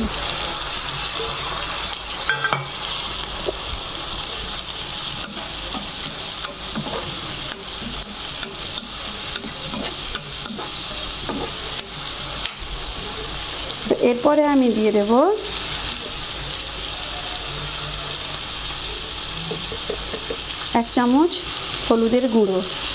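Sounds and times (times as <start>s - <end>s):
vegetables sizzling in oil: 0.0s - 22.9s
spatula scraping a pan: 5.0s - 12.5s.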